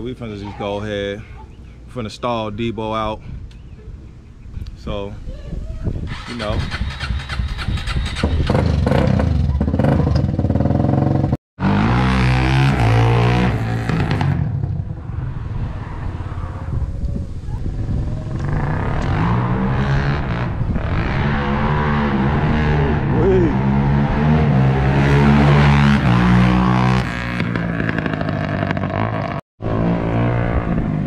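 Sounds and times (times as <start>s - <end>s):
quad engine revving: 6.1s - 14.7s, 17.9s - 31.0s.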